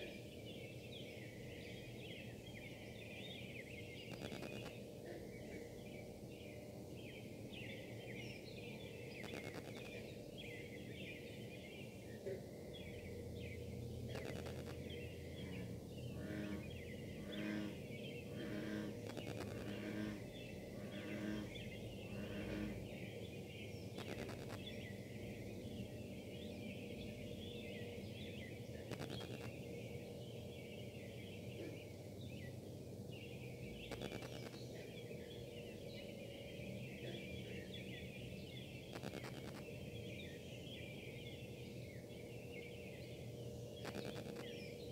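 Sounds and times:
chirps: 1.7s - 4.9s, 8.6s - 11.2s, 12.8s - 25.0s, 26.4s - 30.9s, 33.3s - 44.9s
machinery buzzing drone: 4.0s - 4.8s, 9.2s - 10.1s, 13.9s - 23.1s, 23.9s - 30.0s, 33.7s - 35.2s, 38.8s - 40.0s, 43.2s - 44.9s
sharp interference clicks: 4.1s - 4.8s, 9.2s - 10.0s, 14.1s - 14.8s, 18.9s - 19.8s, 24.0s - 24.7s, 28.9s - 29.6s, 33.8s - 34.6s, 38.9s - 39.7s, 43.8s - 44.6s.

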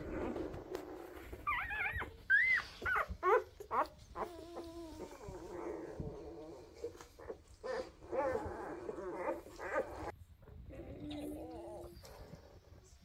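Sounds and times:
puppies squeaking and whimpering: 0.0s - 10.2s.

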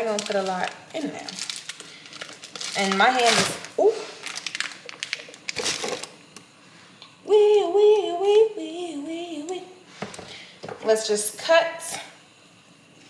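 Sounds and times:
plastic packaging crinkling: 0.0s - 6.2s
woman humming: 7.2s - 9.7s.

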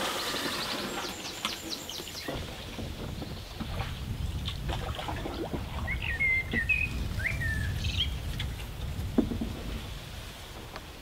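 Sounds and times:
songbird whistling: 5.8s - 8.2s.

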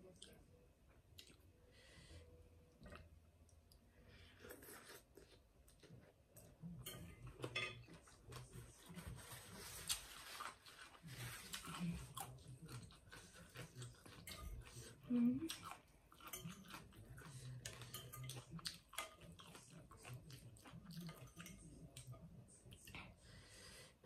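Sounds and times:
chewing with wet mouth clicks: 1.1s - 1.5s, 11.4s - 23.0s.

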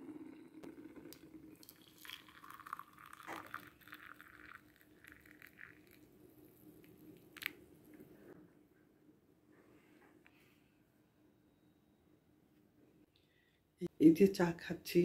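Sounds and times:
water poured into a mug: 0.6s - 6.2s.

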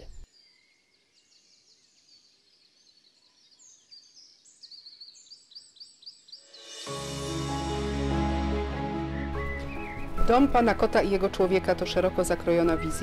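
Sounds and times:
small birds chirping: 0.0s - 6.9s, 9.4s - 11.7s.

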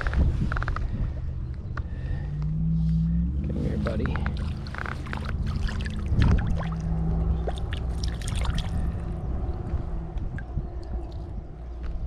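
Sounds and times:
fish splashing in water: 3.9s - 9.1s
water dripping: 4.0s - 8.9s.

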